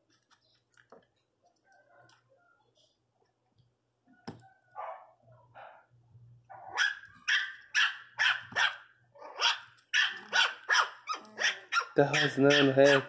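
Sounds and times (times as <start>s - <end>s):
puppies yapping: 6.5s - 13.0s.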